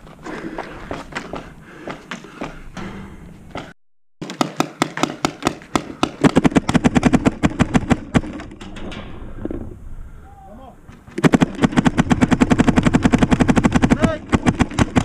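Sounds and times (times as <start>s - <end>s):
paintball markers firing rapidly: 4.2s - 8.4s, 11.1s - 15.0s.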